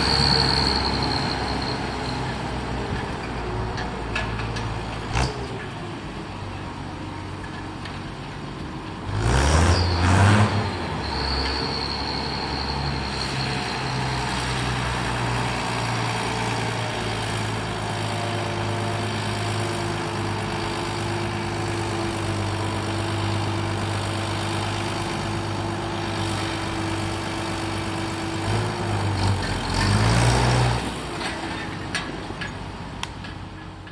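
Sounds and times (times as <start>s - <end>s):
tractor diesel engine revving: 9.0s - 31.2s.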